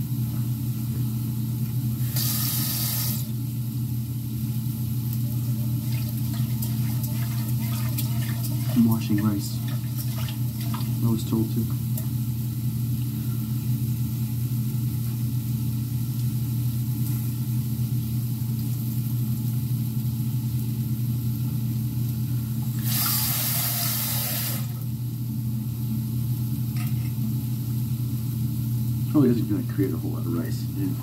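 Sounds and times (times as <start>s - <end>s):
steady low hum: 0.0s - 22.9s, 23.8s - 31.0s
tap water running: 2.0s - 3.4s, 5.7s - 12.3s, 22.6s - 24.8s.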